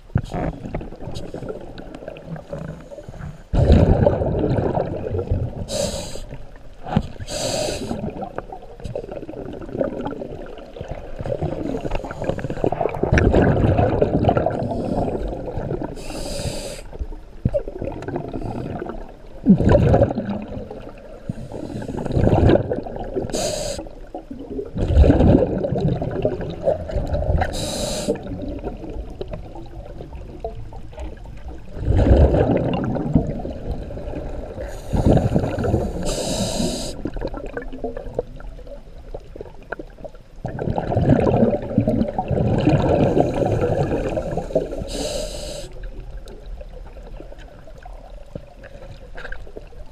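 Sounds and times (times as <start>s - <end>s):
diver breathing through regulator: 5.7s - 6.4s, 7.2s - 8.1s, 16.0s - 17.0s, 21.3s - 22.2s, 23.3s - 23.9s, 27.4s - 28.2s, 34.6s - 37.1s, 42.9s - 45.8s.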